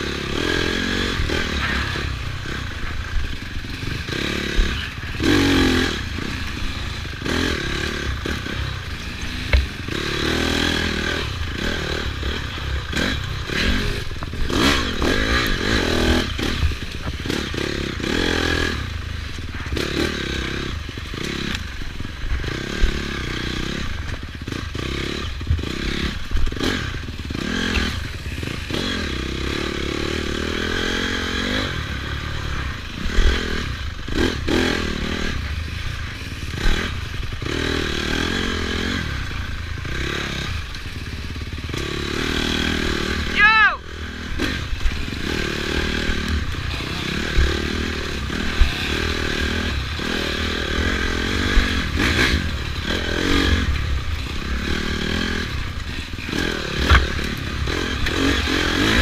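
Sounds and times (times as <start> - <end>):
dirt bike engine revving: 0.0 - 59.0
bike clattering and scraping: 0.4 - 10.4, 11.1 - 42.7, 44.6 - 59.0.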